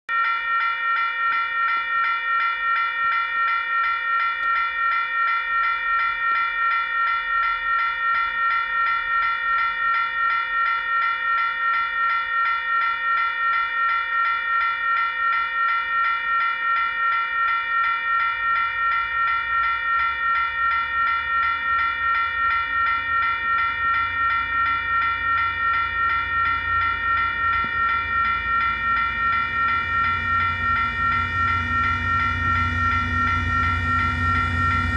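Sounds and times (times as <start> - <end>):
level crossing alarm bell ringing: 0.1 - 34.9
freight train rumble: 21.0 - 34.9.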